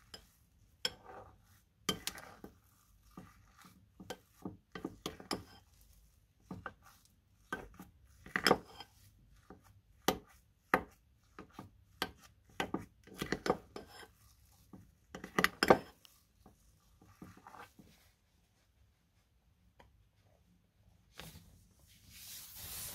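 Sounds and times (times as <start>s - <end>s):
metal spoon scraping glass bowl: 0.0s - 5.9s, 7.4s - 9.5s, 12.0s - 14.3s, 15.1s - 16.0s.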